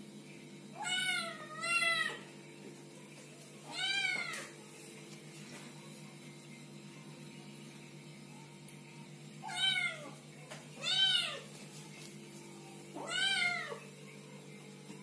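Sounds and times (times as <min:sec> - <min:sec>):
faint low hum: 0:00.0 - 0:15.0.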